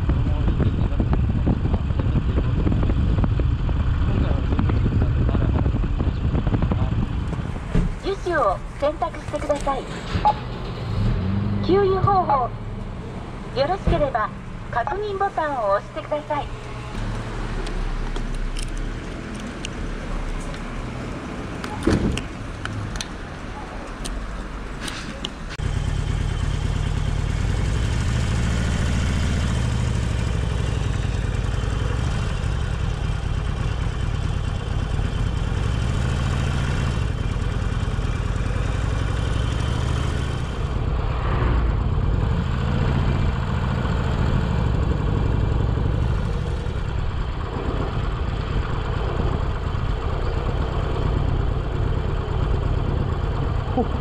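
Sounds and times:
motorcycle engine revving: 0:09.1 - 0:14.8, 0:25.4 - 0:54.0.

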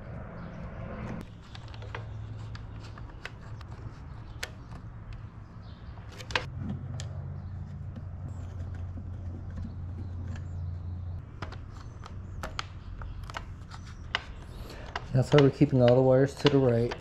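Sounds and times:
low hum: 0:00.0 - 0:01.3
plastic connectors clicking: 0:11.3 - 0:17.0.

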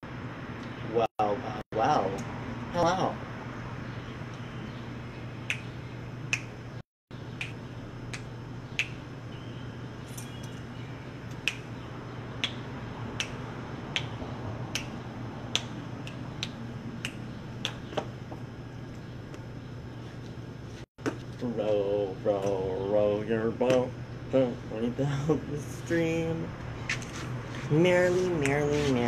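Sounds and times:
steady low hum: 0:00.0 - 0:29.0
fingers snapping: 0:07.4 - 0:09.0, 0:11.3 - 0:11.8, 0:12.4 - 0:12.6, 0:13.2 - 0:13.4, 0:14.0 - 0:17.9.

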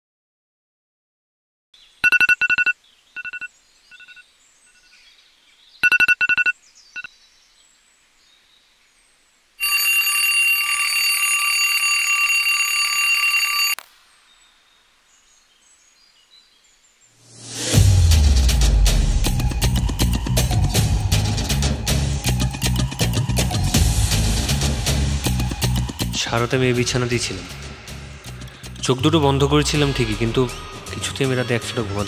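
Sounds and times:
alarm beeping and ringing: 0:02.0 - 0:04.2, 0:05.8 - 0:07.1, 0:09.6 - 0:13.8.

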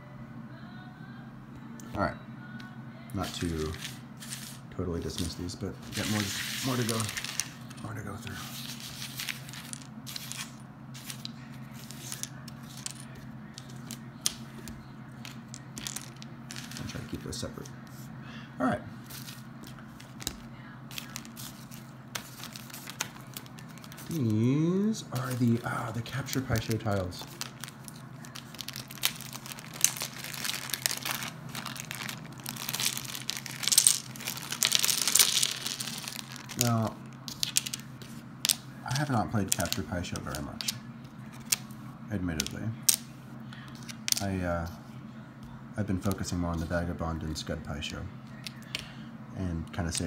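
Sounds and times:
plastic bags crinkling: 0:05.9 - 0:07.7, 0:20.1 - 0:24.5, 0:25.1 - 0:38.1.

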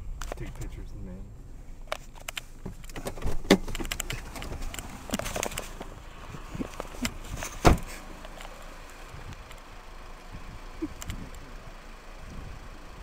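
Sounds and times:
camera handling clicks and rustling: 0:01.9 - 0:05.9
loud thump: 0:07.5 - 0:07.9.

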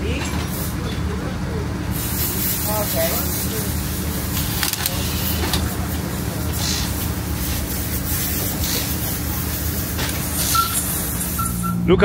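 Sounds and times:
mechanical hum: 0:00.0 - 0:12.0
short bursts of hiss: 0:06.5 - 0:11.6.

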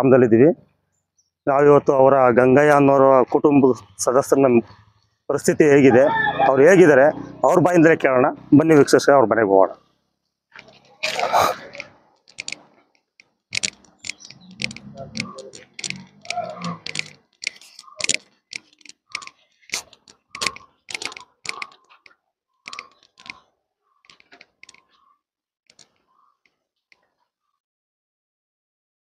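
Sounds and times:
footsteps on paved path: 0:10.5 - 0:23.4.

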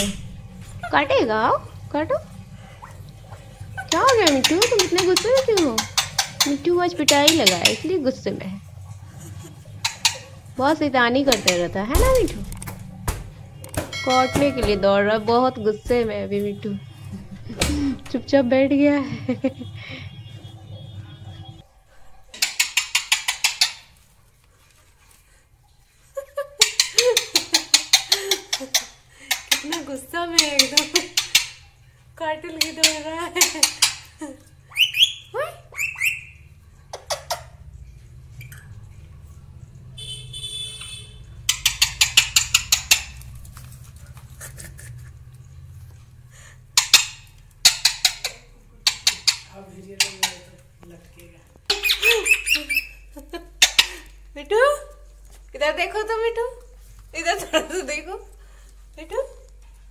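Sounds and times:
parakeet harsh clicking chatter: 0:03.6 - 0:08.2, 0:09.5 - 0:11.8, 0:22.3 - 0:24.0, 0:26.6 - 0:31.8, 0:32.4 - 0:34.2, 0:40.8 - 0:43.4, 0:46.7 - 0:50.7, 0:51.6 - 0:54.1
parakeet squawking: 0:09.4 - 0:10.5, 0:11.2 - 0:11.8, 0:32.5 - 0:37.6, 0:41.4 - 0:43.2, 0:46.8 - 0:50.6, 0:51.7 - 0:54.1.

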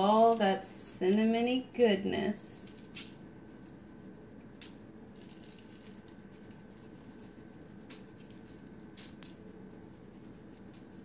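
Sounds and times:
topping pattering on crumbs: 0:02.7 - 0:11.0.

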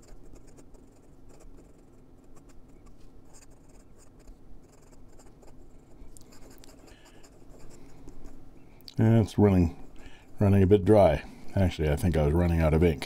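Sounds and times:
pen nib scratching on paper: 0:00.0 - 0:08.4.

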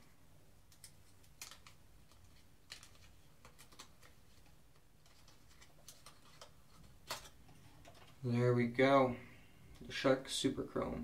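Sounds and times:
paper crinkling: 0:00.8 - 0:08.2.

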